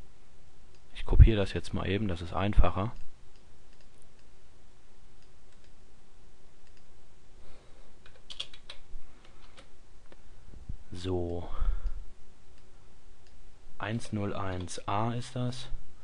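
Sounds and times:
computer keyboard keystrokes: 0:08.0 - 0:09.7.

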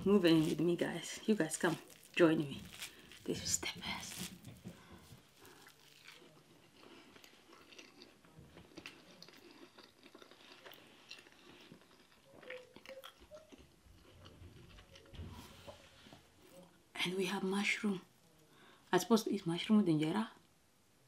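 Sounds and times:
person chewing food: 0:01.6 - 0:03.3, 0:04.1 - 0:16.7.

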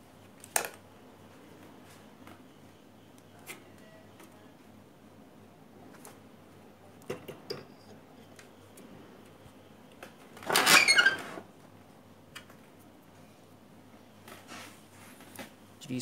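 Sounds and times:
rustling scraping against microphone: 0:14.3 - 0:15.5.

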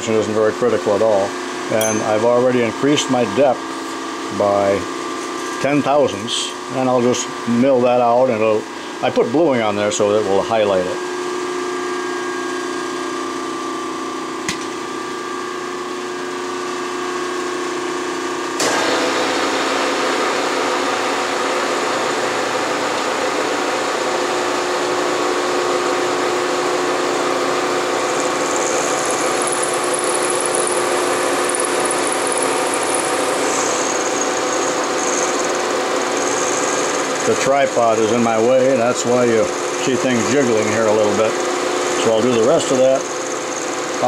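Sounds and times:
milling machine spindle running: 0:17.4 - 0:44.0
end mill cutting metal: 0:18.6 - 0:44.0.

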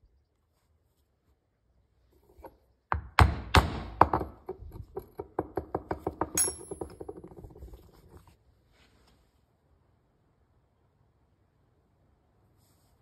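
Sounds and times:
sharp knocks and taps: 0:02.4 - 0:07.7.

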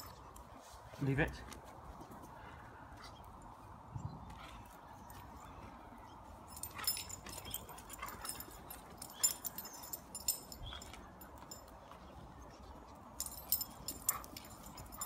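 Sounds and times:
light high clicks and jingles: 0:06.4 - 0:15.0.

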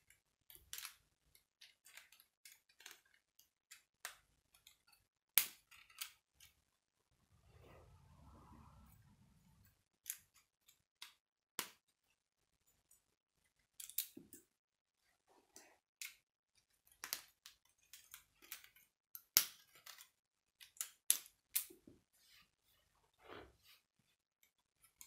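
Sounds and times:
plastic pieces clicking together: 0:00.5 - 0:06.6, 0:13.7 - 0:14.4, 0:16.8 - 0:21.8.

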